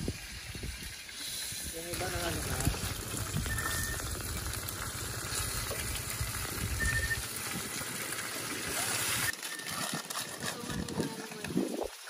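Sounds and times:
meat sizzling in a frying pan: 0.0s - 9.3s.

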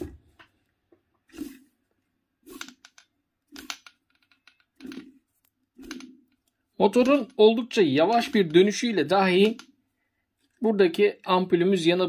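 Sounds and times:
motor rotor clicking and rubbing: 2.4s - 9.6s.

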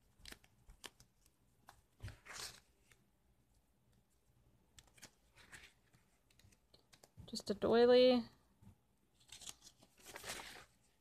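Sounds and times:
paper pages turning: 0.0s - 3.1s, 4.7s - 7.2s, 9.1s - 11.0s.

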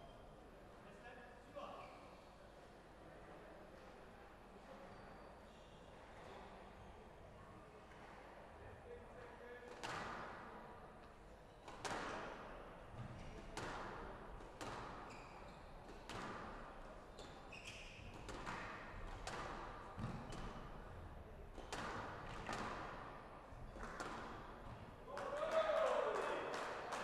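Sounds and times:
squash ball hitting rackets and walls: 11.7s - 12.4s, 13.0s - 15.1s, 15.8s - 17.4s, 18.0s - 20.8s, 21.5s - 24.9s.

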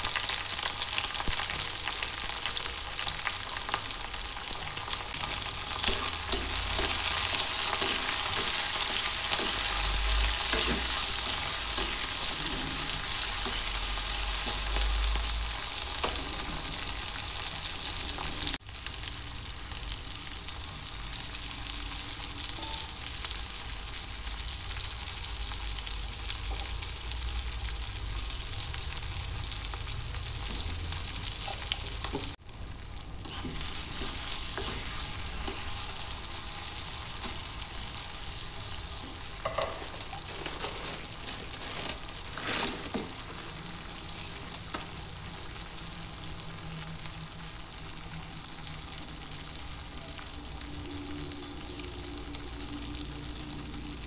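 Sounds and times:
vegetables sizzling in oil: 0.0s - 54.0s
spoon scraping wok: 5.1s - 15.1s, 33.2s - 37.5s.

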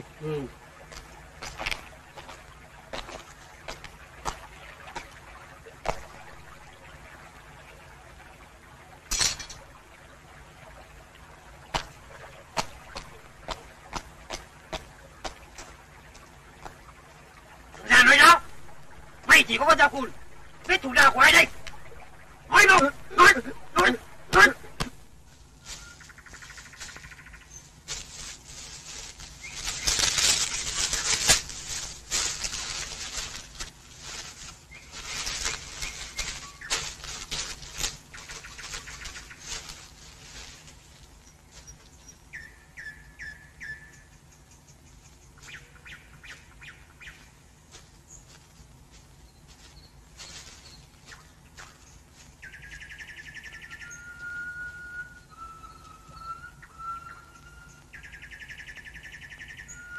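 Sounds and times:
birds chirping and trilling: 0.0s - 48.4s, 49.1s - 59.9s
leaves and twigs rustling and snapping: 0.2s - 7.4s, 9.0s - 42.8s, 47.0s - 55.0s
thin rising whistle: 53.8s - 57.8s.

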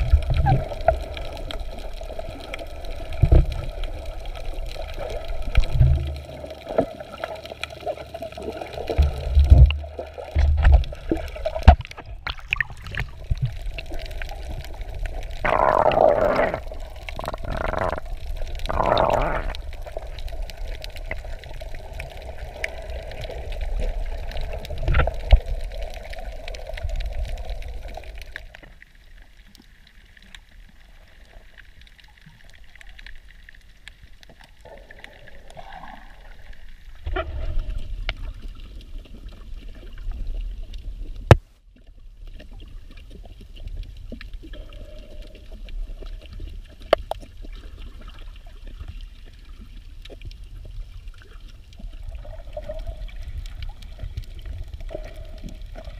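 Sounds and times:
muffled underwater sloshing: 0.0s - 55.9s.

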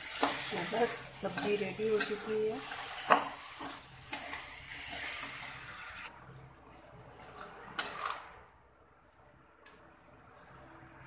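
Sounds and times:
curry sizzling in a pan: 0.0s - 6.1s
metal spatula scraping pan: 0.0s - 6.1s, 7.2s - 8.4s.

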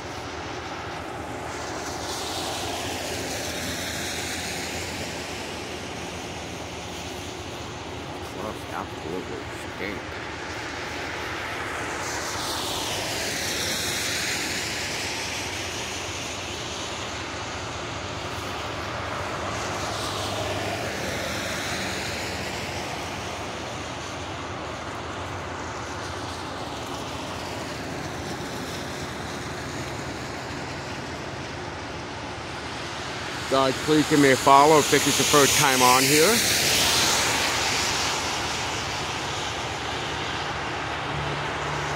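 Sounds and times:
car tyres hissing on wet road: 0.0s - 41.9s.

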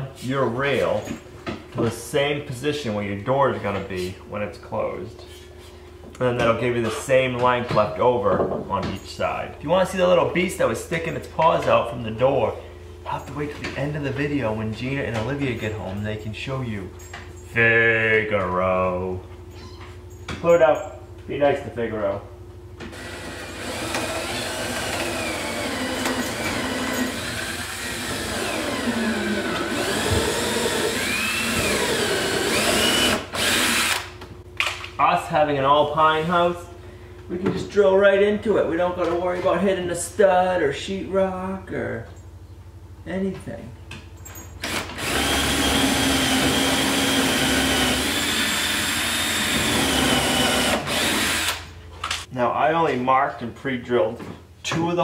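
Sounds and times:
cordless drill boring into wood: 22.9s - 34.1s, 44.6s - 51.7s.

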